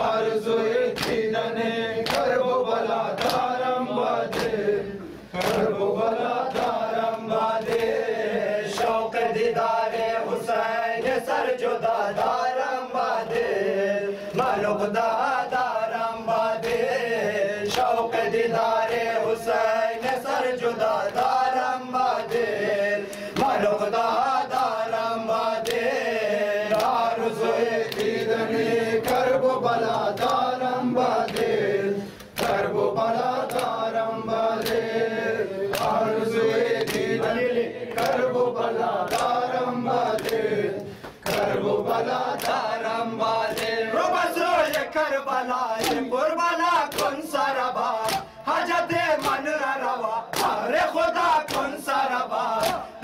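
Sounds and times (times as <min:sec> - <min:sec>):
men chanting a lament: 0:00.0 - 0:53.0
hands slapping on chests: 0:00.9 - 0:01.3, 0:02.0 - 0:02.4, 0:03.2 - 0:03.5, 0:04.3 - 0:04.6, 0:05.4 - 0:05.7, 0:06.5 - 0:08.0, 0:23.1 - 0:23.6, 0:25.6 - 0:25.9, 0:26.7 - 0:27.0, 0:27.9 - 0:28.3, 0:29.0 - 0:29.4, 0:30.1 - 0:30.5, 0:31.2 - 0:31.6, 0:32.2 - 0:32.7, 0:33.4 - 0:33.9, 0:34.6 - 0:34.8, 0:35.7 - 0:36.0, 0:36.8 - 0:37.1, 0:37.9 - 0:38.3, 0:39.0 - 0:39.4, 0:40.1 - 0:42.8, 0:43.5 - 0:43.8, 0:44.6 - 0:44.9, 0:45.8 - 0:46.1, 0:46.9 - 0:47.2, 0:48.0 - 0:48.3, 0:49.2 - 0:49.4, 0:50.3 - 0:50.6, 0:51.4 - 0:51.8, 0:52.6 - 0:52.9.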